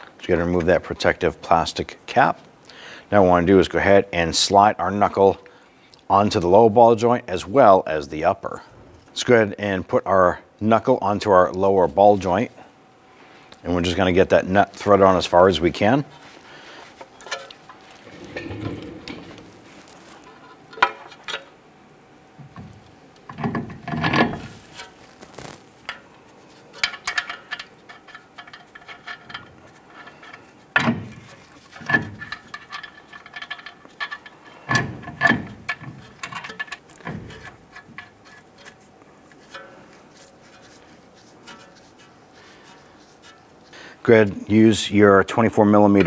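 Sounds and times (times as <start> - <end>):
metal scraping: 15.8 - 21.5, 31.2 - 43.7
metal clanks and knocks: 17.2 - 21.5, 26.7 - 38.8.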